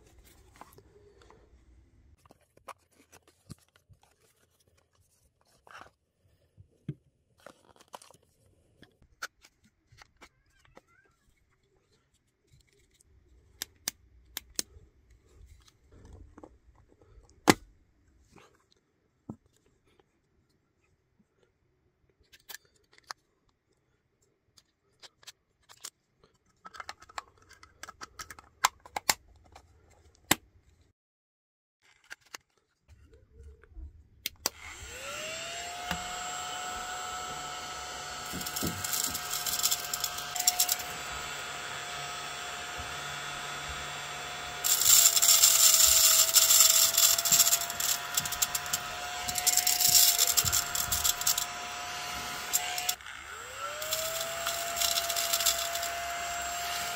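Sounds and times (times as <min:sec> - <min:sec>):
plastic housing clicks and snaps: 0:26.6 - 0:29.6.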